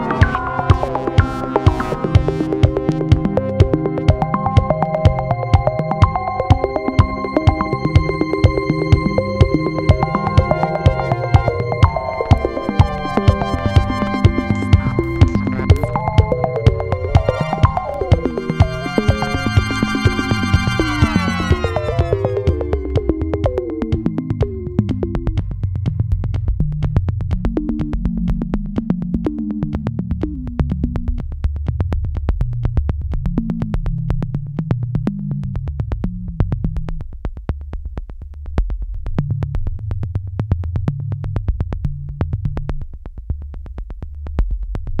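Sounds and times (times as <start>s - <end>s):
synthesizer bass line: 0.0s - 26.1s
fast electronic beat: 0.0s - 34.6s.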